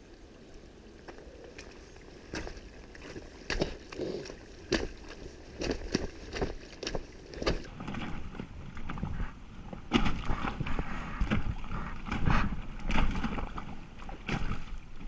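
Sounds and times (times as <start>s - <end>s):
footsteps squelching in mud: 1.0s - 9.1s.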